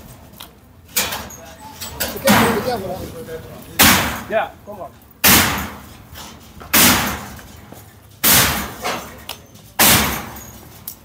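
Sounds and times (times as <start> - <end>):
demolition tool striking concrete: 3.8 - 4.4, 5.2 - 5.9, 6.6 - 7.4, 8.2 - 9.2, 9.8 - 10.6.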